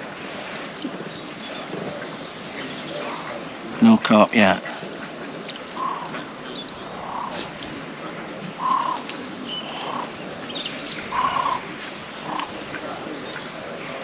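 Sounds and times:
steady outdoor hiss: 0:00.0 - 0:14.0
small bird chirps: 0:05.7 - 0:11.6
waterbird harsh calls: 0:06.9 - 0:12.6.

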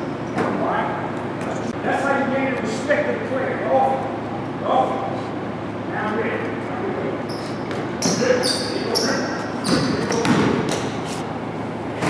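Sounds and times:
basketball bouncing on hardwood floor: 0:09.6 - 0:10.9.

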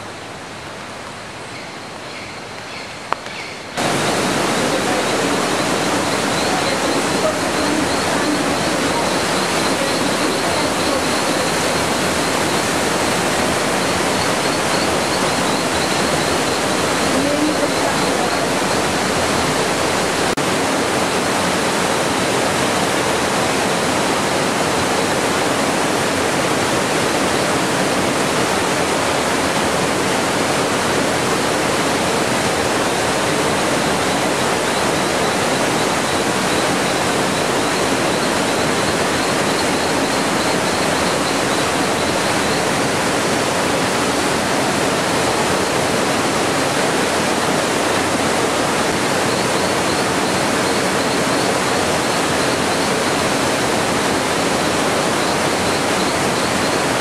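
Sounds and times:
stream rushing over rocks: 0:00.0 - 0:57.0
high chirping trill: 0:03.8 - 0:20.3.

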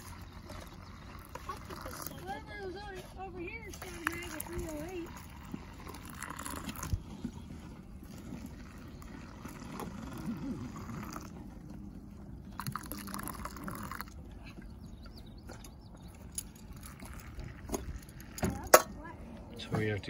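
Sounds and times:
hot water pouring into cups: 0:00.0 - 0:02.4, 0:03.7 - 0:07.3, 0:08.0 - 0:11.3, 0:12.5 - 0:14.1, 0:16.7 - 0:18.1.

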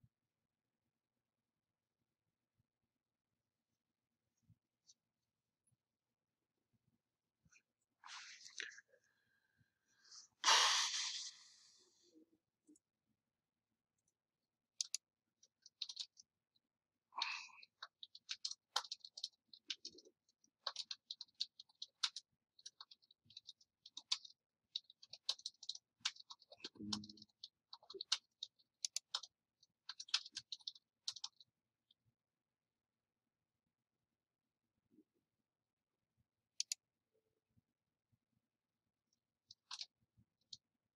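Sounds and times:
keyboard and mouse clicks: 0:14.8 - 0:16.3, 0:17.2 - 0:31.5, 0:36.5 - 0:36.8, 0:39.4 - 0:40.6.

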